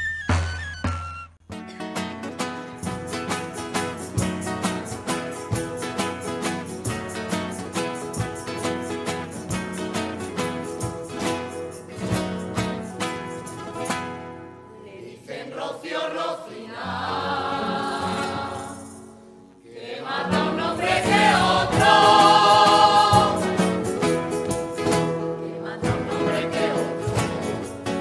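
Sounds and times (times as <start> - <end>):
strummed guitar: 1.5 - 14.7, 16.9 - 28.0
choir singing: 14.8 - 28.0.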